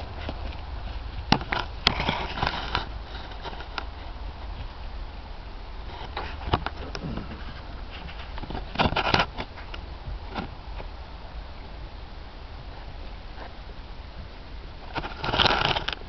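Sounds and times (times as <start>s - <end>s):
hooves thudding on grass: 0.0s - 8.7s
steady low rumble: 0.0s - 15.3s
knocks and rustling: 6.0s - 10.9s.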